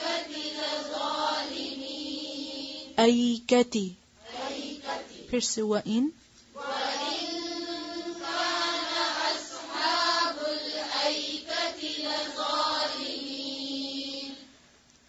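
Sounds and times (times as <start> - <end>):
person chanting melodically: 6.6 - 14.4.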